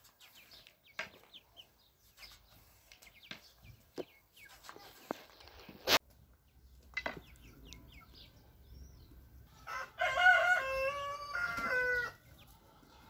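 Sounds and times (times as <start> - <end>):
chickens clucking and chirping: 0.0 - 13.0
rooster crowing: 9.6 - 12.2.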